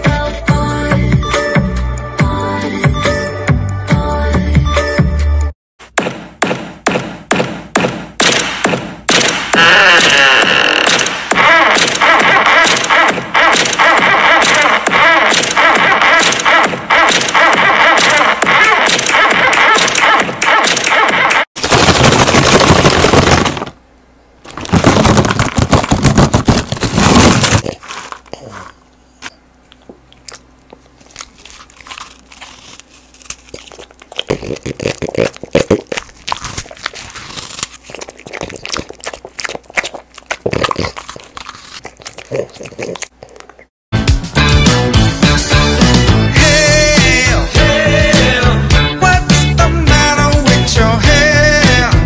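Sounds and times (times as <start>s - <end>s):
dog crunching and chewing: 24.5s - 43.7s.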